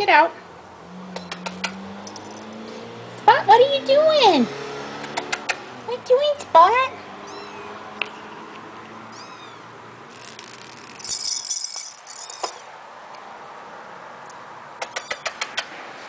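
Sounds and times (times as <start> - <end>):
rattling jingling scuffle: 2.0 - 2.7, 10.1 - 12.7.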